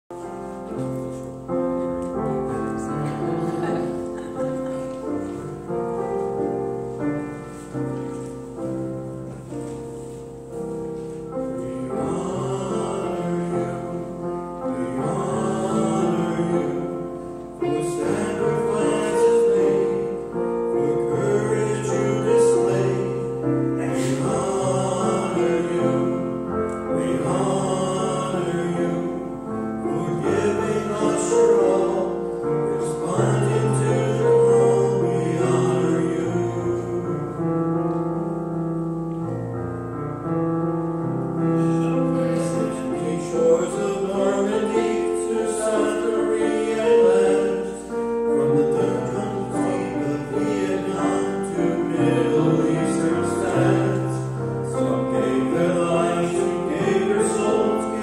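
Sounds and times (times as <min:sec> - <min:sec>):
church keyboard playing chords: 0:00.1 - 0:58.0
men singing a hymn: 0:10.0 - 0:37.7, 0:41.5 - 0:58.0.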